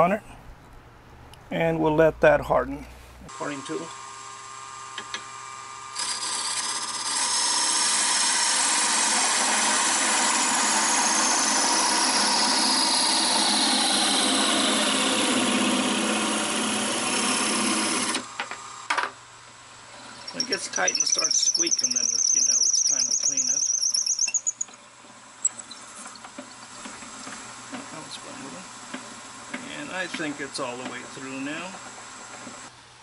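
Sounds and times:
wood lathe running: 0:06.0 - 0:18.5, 0:20.0 - 0:24.6
parting tool cutting hiss: 0:20.2 - 0:24.7.

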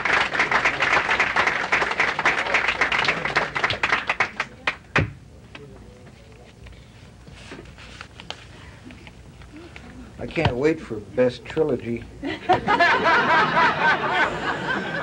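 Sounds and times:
audience applauding: 0:00.0 - 0:04.8.

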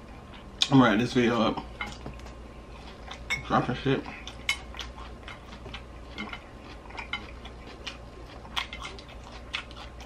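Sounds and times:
fork clinking against glass bowl: 0:03.3 - 0:03.5.

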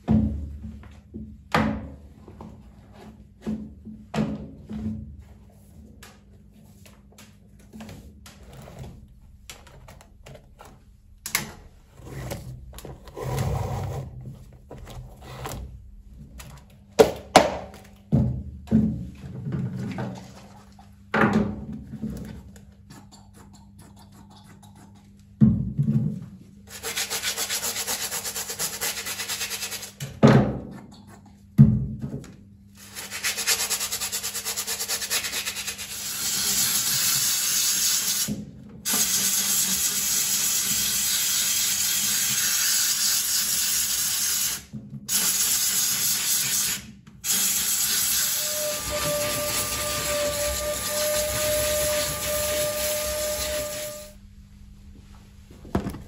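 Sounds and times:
brush scrubbing shoes: 0:26.7 - 0:30.0, 0:32.8 - 0:38.2, 0:47.5 - 0:54.0.

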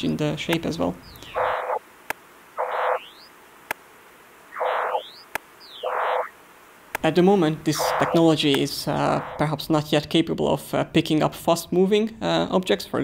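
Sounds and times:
dense cluster of tones: 0:01.3 - 0:01.8, 0:04.5 - 0:05.2
thin high tone: 0:04.6 - 0:06.3, 0:07.7 - 0:08.4, 0:09.0 - 0:09.5.

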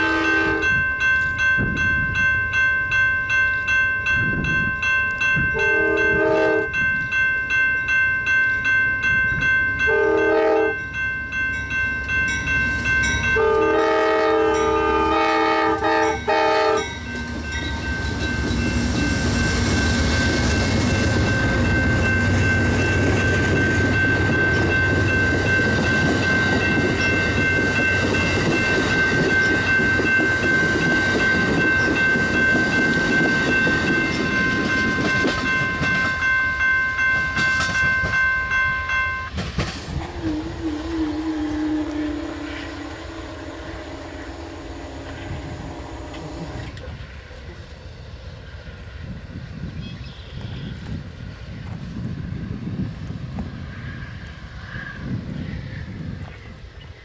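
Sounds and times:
train horn blasts: 0:00.0 - 0:00.8, 0:05.5 - 0:06.8, 0:09.8 - 0:10.8, 0:13.3 - 0:17.1, 0:39.9 - 0:46.8
steady high tone: 0:00.0 - 0:46.9
train wheels rumbling on rails: 0:03.5 - 0:56.6.

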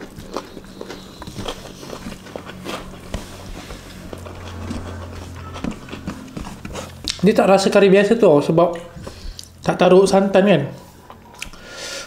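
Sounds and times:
chewing and lip smacks: 0:00.0 - 0:07.2, 0:10.9 - 0:11.6
fingers mixing rice and curry: 0:00.0 - 0:07.8
steady low hum: 0:00.0 - 0:12.0.

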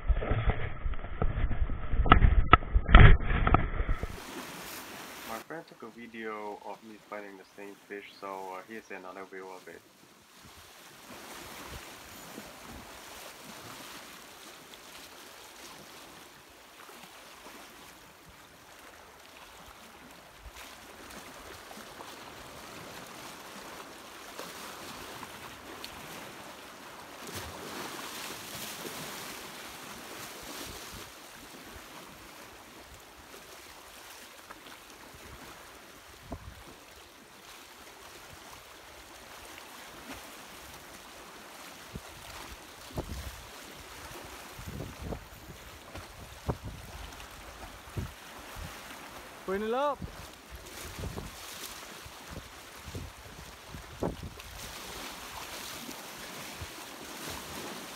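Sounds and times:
wind on microphone: 0:00.0 - 0:04.2, 0:36.1 - 0:36.7, 0:41.9 - 0:48.9, 0:50.0 - 0:55.4
waves washing against rocks: 0:34.9 - 0:57.9.

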